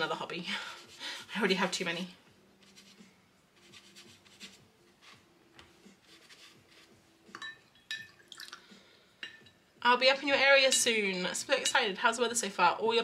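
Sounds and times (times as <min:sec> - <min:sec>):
paintbrush stroking paper: 0:02.6 - 0:07.1.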